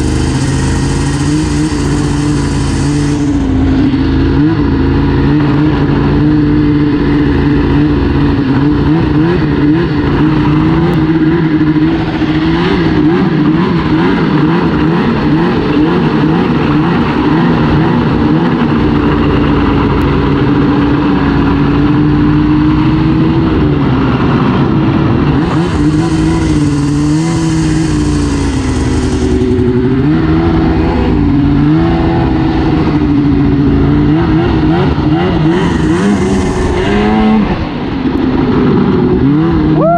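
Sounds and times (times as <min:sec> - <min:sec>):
snowmobile engine revving: 0:00.0 - 0:39.9
high hiss: 0:00.1 - 0:03.5, 0:25.8 - 0:29.5.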